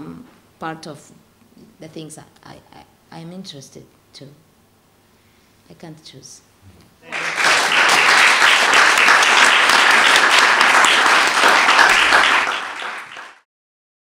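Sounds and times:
audience applauding: 7.0 - 13.5.

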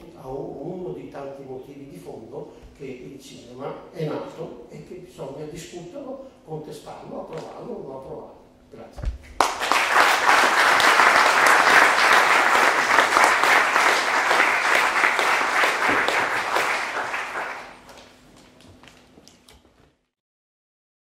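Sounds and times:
audience applauding: 9.4 - 18.1.

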